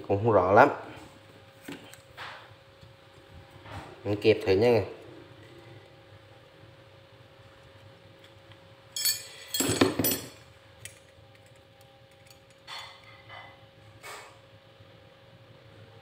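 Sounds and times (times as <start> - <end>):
metal drill bits clinking: 9.0 - 10.3.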